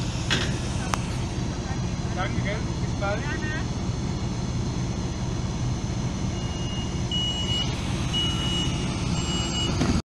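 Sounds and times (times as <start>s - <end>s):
low hum of standing train: 0.0s - 10.0s
train door warning beeps: 6.4s - 9.8s.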